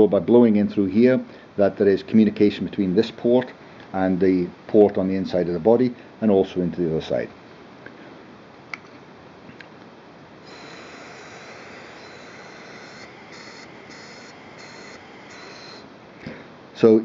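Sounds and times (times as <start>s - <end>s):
air hissing through carburettor: 10.4s - 15.9s.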